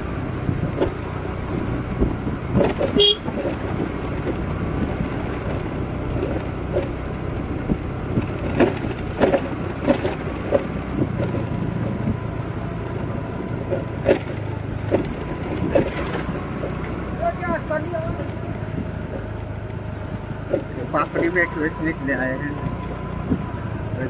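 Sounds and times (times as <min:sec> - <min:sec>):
road and wind noise: 0:00.0 - 0:24.0
scooter engine running: 0:00.0 - 0:24.0
sharp rattles and knocks: 0:00.0 - 0:24.0.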